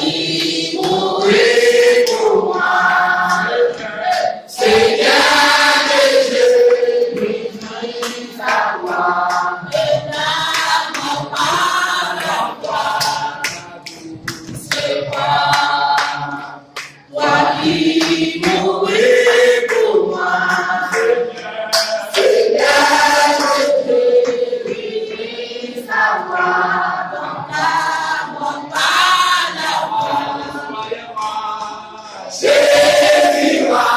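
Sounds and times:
choir singing a hymn: 0.0s - 33.9s.

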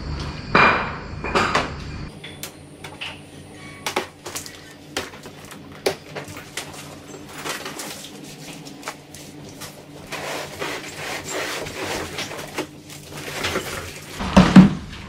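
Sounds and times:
cardboard rubbing and scraping: 6.5s - 14.2s.

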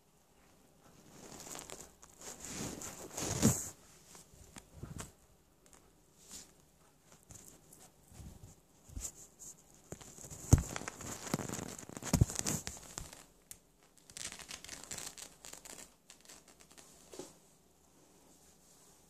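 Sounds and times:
scratchy rustling and scuffing: 0.5s - 5.2s, 5.8s - 13.3s.

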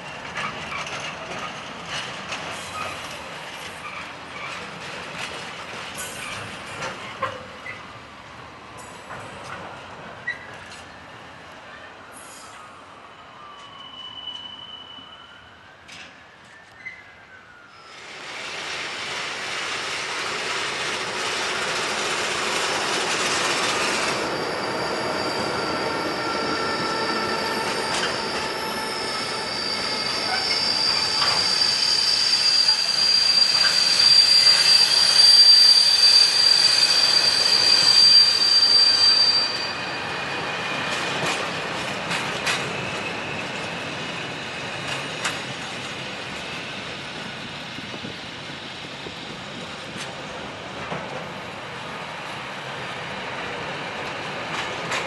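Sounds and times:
train wagons rumbling: 0.0s - 7.8s, 18.2s - 51.9s
metallic wheel squeal: 23.4s - 41.4s.

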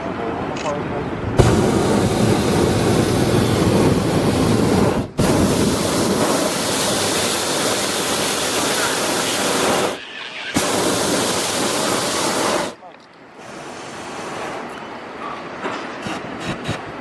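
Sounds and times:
propane burner roaring: 1.3s - 14.7s.

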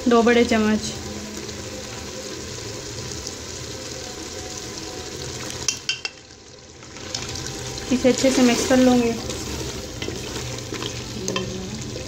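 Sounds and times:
food sizzling in oil: 0.0s - 12.0s
spatula stirring in pot: 7.0s - 12.0s.

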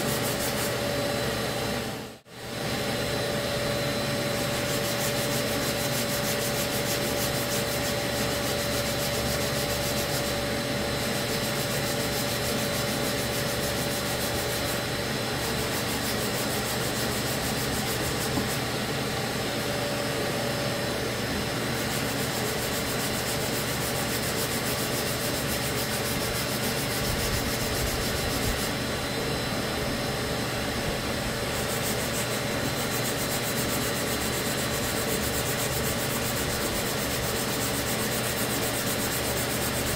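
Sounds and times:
sanding block rasping: 0.0s - 0.8s, 4.2s - 18.6s, 21.7s - 28.8s, 31.4s - 39.9s
steady hum with high whine: 0.0s - 39.9s.

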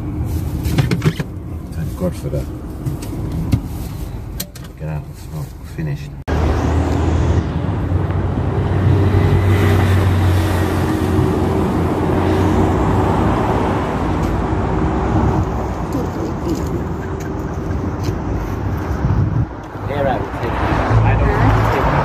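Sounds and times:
car engine hum: 0.0s - 22.0s
road noise: 0.0s - 22.0s
wind rushing: 18.2s - 22.0s.

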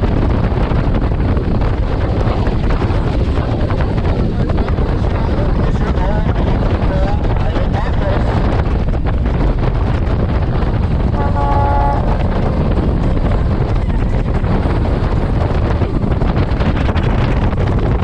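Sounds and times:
boat engine noise: 0.0s - 18.0s
wind buffeting microphone: 0.0s - 18.0s
horn toot: 11.1s - 12.4s.

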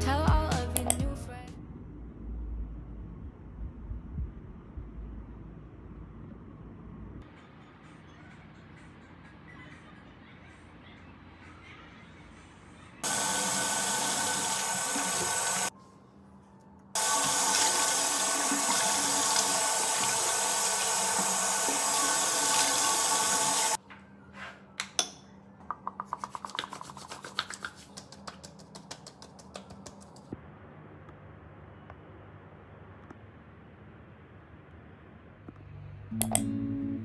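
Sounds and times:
tap running into basin: 17.0s - 23.8s
wet hands rubbing: 25.7s - 30.3s.

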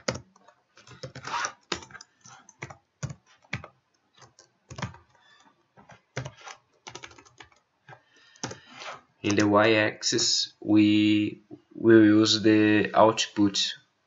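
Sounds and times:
typing on a computer keyboard: 0.0s - 7.6s, 8.3s - 8.6s, 9.3s - 9.5s.

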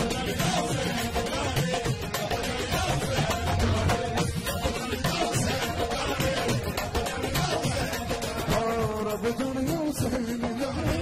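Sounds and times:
fast percussion strokes: 0.0s - 11.0s.

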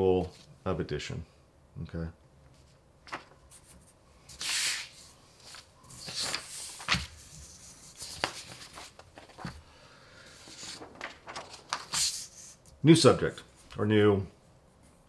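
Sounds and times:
paper rustling and sliding: 2.6s - 9.6s, 10.2s - 12.6s.

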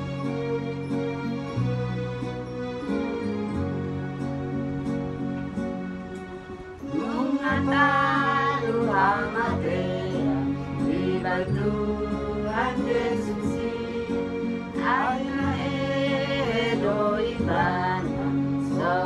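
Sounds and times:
instrumental accompaniment with bass: 0.0s - 19.0s
person singing: 6.8s - 19.0s.

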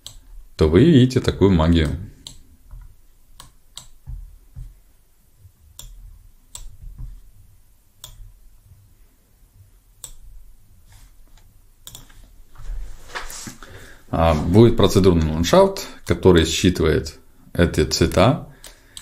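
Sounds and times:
computer mouse clicks: 0.0s - 0.3s, 1.8s - 4.7s, 5.7s - 7.2s, 8.0s - 8.4s, 10.0s - 10.3s, 11.3s - 12.2s, 18.6s - 19.0s
faint low room rumble: 0.0s - 19.0s.

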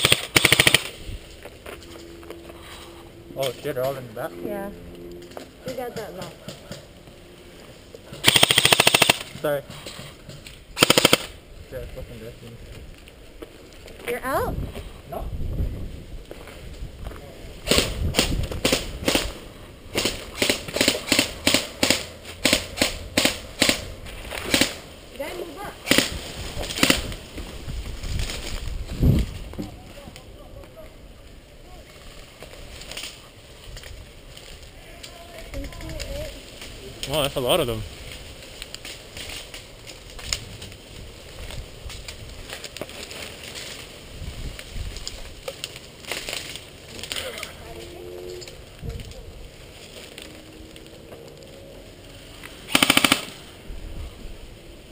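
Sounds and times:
airsoft rifle shots: 0.0s - 0.9s, 8.2s - 9.4s, 10.8s - 11.4s, 17.7s - 23.8s, 24.4s - 24.8s, 52.7s - 53.4s
sharp clicks and crackles: 0.0s - 2.4s, 8.1s - 11.4s, 31.8s - 37.2s, 38.0s - 43.9s, 44.5s - 51.7s.

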